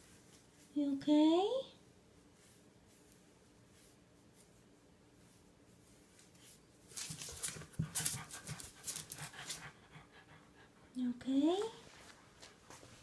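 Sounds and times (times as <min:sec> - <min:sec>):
small dog panting: 0:07.3 - 0:11.0.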